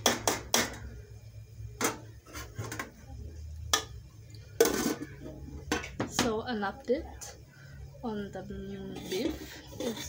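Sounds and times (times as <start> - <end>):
spoon tapping metal pot: 3.7 - 4.0.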